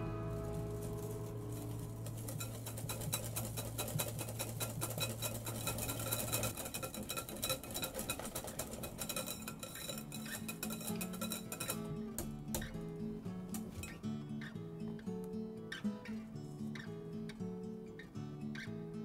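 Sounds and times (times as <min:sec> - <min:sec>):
whisk clicking against glass bowl: 0:02.1 - 0:11.9.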